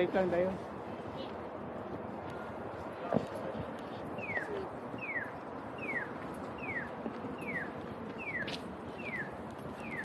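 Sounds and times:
street noise: 0:00.0 - 0:10.0
crossing signal chirping: 0:04.2 - 0:10.0.

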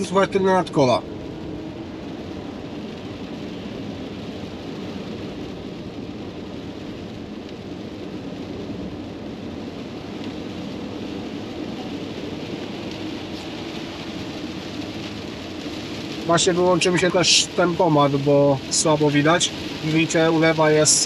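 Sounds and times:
rain falling on vehicle body: 0:00.0 - 0:21.0.

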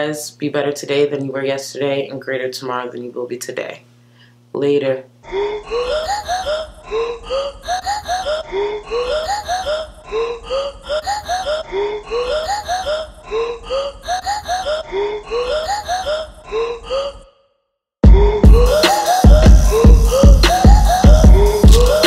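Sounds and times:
looping electronic music: 0:18.0 - 0:22.0.

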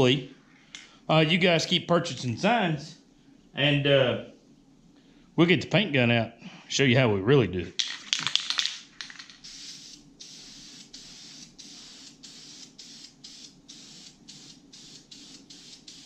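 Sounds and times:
spray-paint can hissing in bursts: 0:09.4 - 0:16.0.

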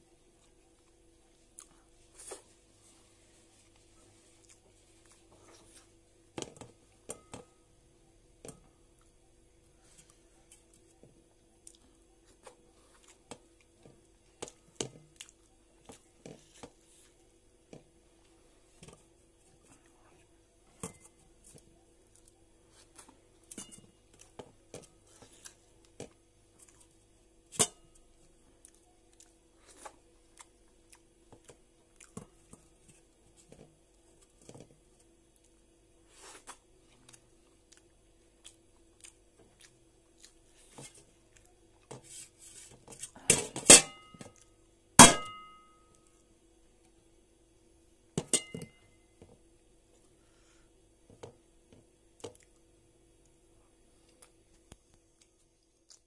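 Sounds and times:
soft chewing and mouth smacks: 0:00.2 - 0:06.2, 0:08.8 - 0:17.4, 0:21.0 - 0:27.3, 0:27.9 - 0:42.0, 0:52.1 - 0:56.0.

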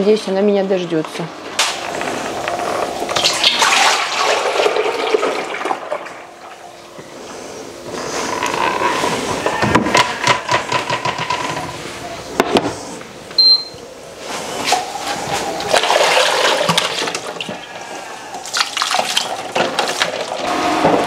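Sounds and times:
water running and splashing: 0:03.2 - 0:06.2.

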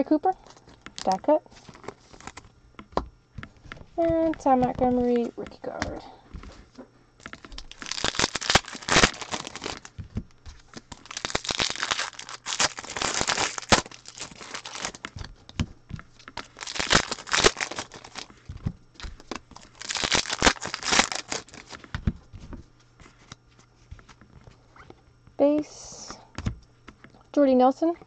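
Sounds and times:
foil wrappers crinkling and tearing: 0:00.0 - 0:02.5, 0:07.2 - 0:23.4.

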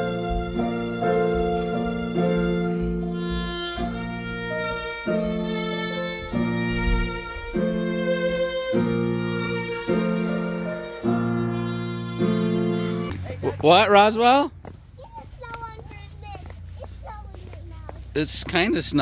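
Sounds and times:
digital piano chords: 0:00.0 - 0:13.2
violin melody: 0:00.0 - 0:13.2.

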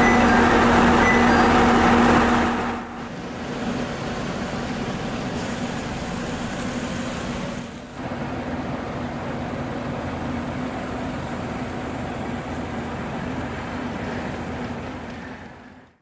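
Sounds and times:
low drone: 0:00.0 - 0:07.2
vehicle engines idling: 0:00.0 - 0:15.9.

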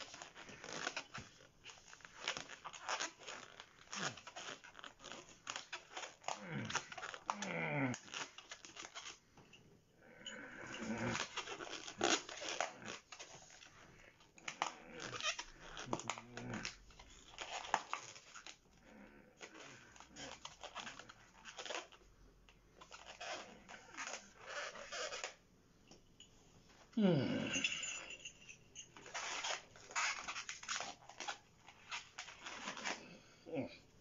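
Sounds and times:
balloon squeaking and hissing: 0:14.5 - 0:18.5, 0:22.8 - 0:25.4, 0:29.0 - 0:33.2.

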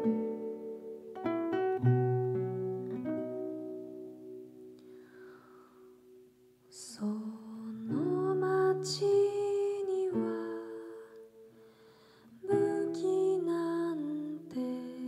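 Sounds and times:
fingerpicked classical guitar: 0:00.0 - 0:15.0
woman singing long held notes: 0:06.7 - 0:11.3, 0:12.4 - 0:15.0.

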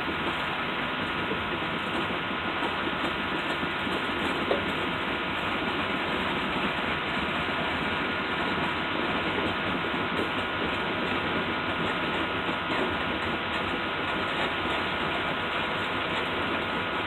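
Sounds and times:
railcars rolling on track: 0:00.0 - 0:17.0.

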